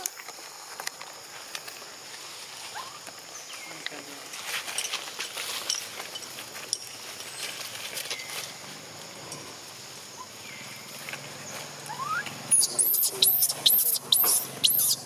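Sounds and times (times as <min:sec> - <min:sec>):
baby monkey crying shrilly: 0:11.9 - 0:15.0.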